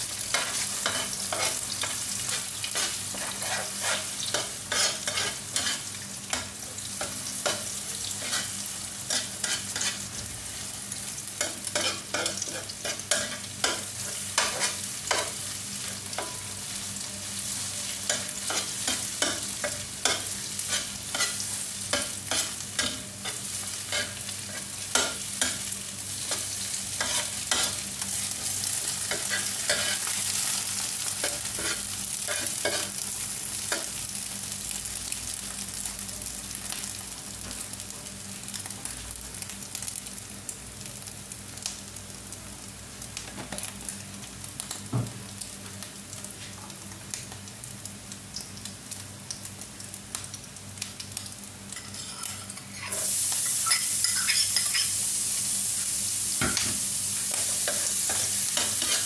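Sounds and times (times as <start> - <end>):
eggs sizzling in oil: 0.0 - 59.0
metal spoon scraping pan: 51.8 - 54.9.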